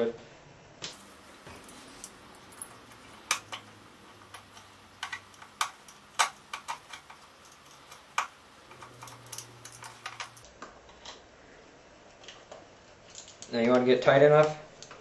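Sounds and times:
screwdriver clicking on screw: 1.6 - 10.4.

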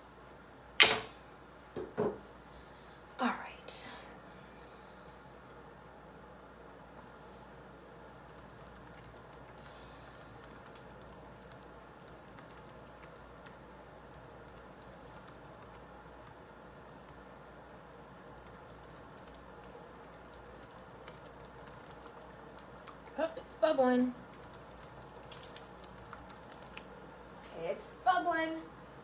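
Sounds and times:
sauce bubbling and popping: 25.1 - 26.9.

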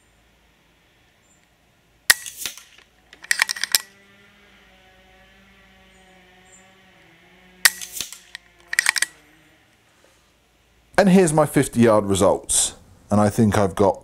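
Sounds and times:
air rifle shot: 2.1 - 2.8, 7.7 - 8.3
rifle lever action clicks: 2.1 - 3.9, 7.7 - 9.2.

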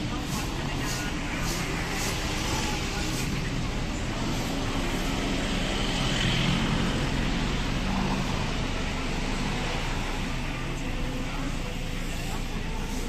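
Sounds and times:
street traffic: 0.0 - 13.0
vehicle engine running close: 0.0 - 13.0.

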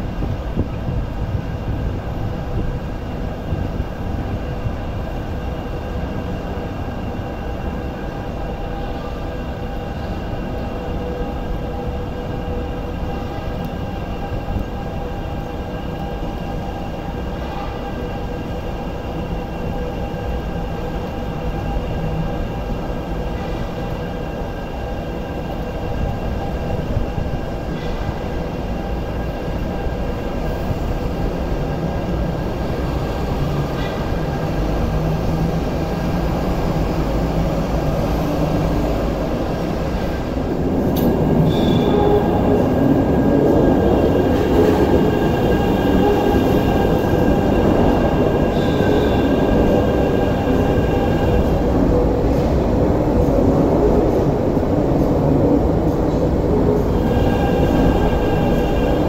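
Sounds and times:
wheel and rail noise: 0.0 - 59.0
high wheel squeal: 41.2 - 42.8, 48.4 - 51.4.

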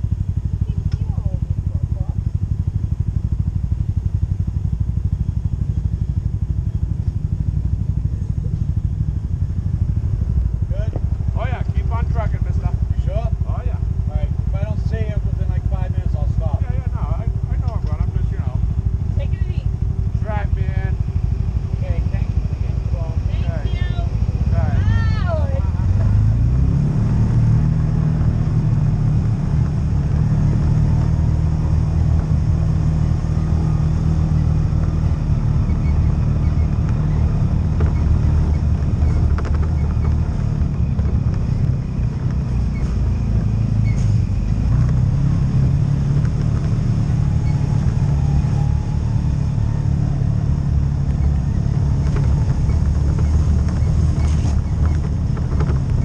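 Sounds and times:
off-road vehicle engine running: 0.0 - 56.0
stones clicking under tyres: 34.8 - 43.7, 44.5 - 45.3, 46.1 - 48.2, 50.8 - 56.0.

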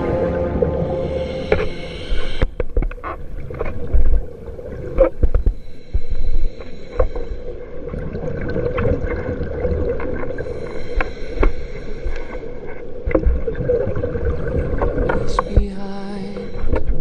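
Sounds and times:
steady underwater drone: 0.0 - 17.0
regulator exhale bubbles: 0.6 - 12.8.

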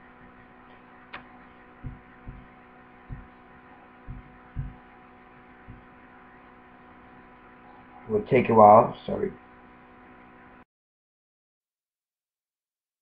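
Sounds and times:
electrical hum: 0.0 - 10.6
soft low thumps: 1.8 - 3.4, 4.0 - 4.9, 5.6 - 5.9.

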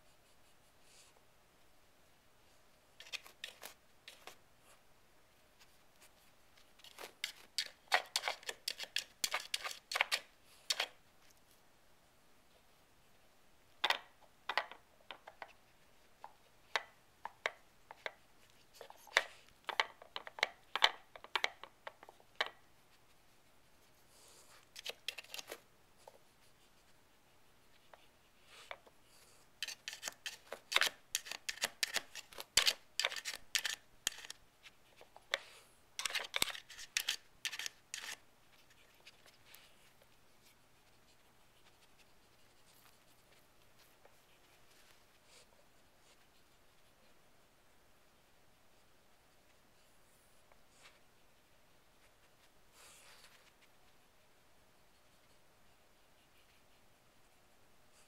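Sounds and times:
dog claws scratching plastic lids: 6.8 - 11.0, 29.6 - 34.4, 36.0 - 38.2.

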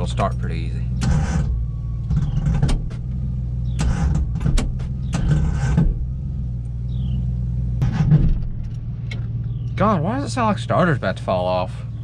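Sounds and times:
starter motor cranking engine: 1.0 - 6.0.

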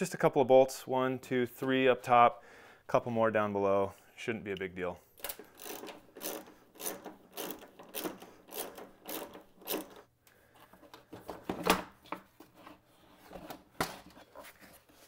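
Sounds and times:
socket ratchet clicking: 5.2 - 10.0.

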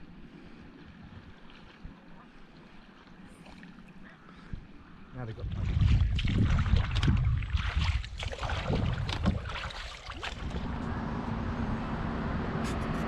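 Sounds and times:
water splashing at a canoe: 0.0 - 4.7, 5.4 - 10.9
steady outdoor hiss: 0.0 - 5.4
wind buffeting microphone: 4.5 - 13.0
low rumble: 5.4 - 13.0.

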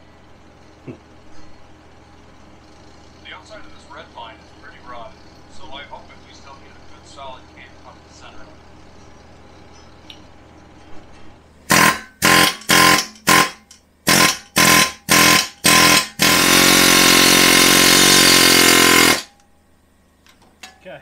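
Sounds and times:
pneumatic air hammer rattling: 11.7 - 19.4.

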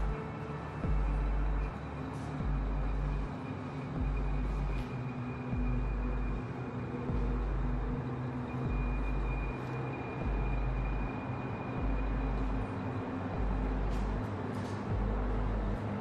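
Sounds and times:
faint high whine: 0.0 - 16.0
throbbing deep rumble: 0.8 - 1.7, 13.4 - 14.2.

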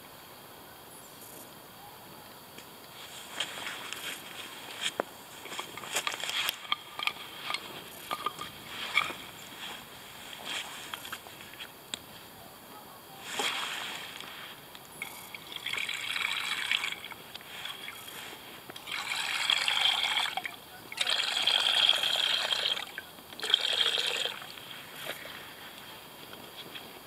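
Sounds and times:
water pouring into a pot: 15.0 - 18.1, 18.8 - 24.5.

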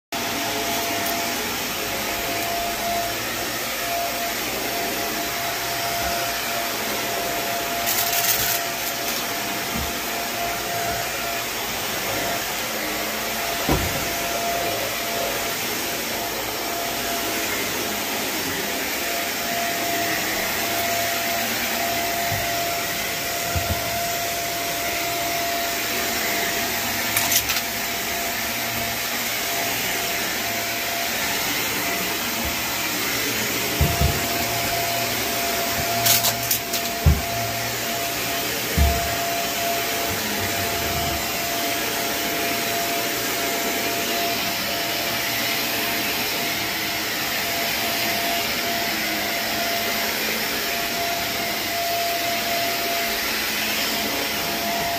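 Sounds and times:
carpet cleaning machine suction hiss: 0.2 - 54.9.

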